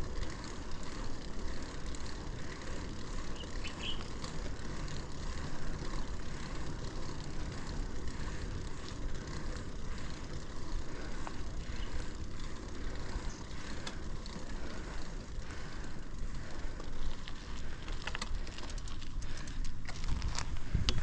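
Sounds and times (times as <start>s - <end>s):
bicycle clicks and crunches: 0.0s - 21.0s
wind rumble on microphone: 17.9s - 21.0s.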